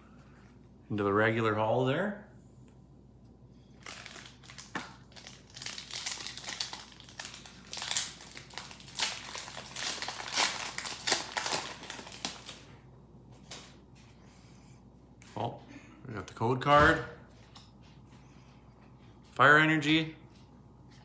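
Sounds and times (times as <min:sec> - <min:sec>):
foil wrapper crinkling: 0:03.7 - 0:12.7.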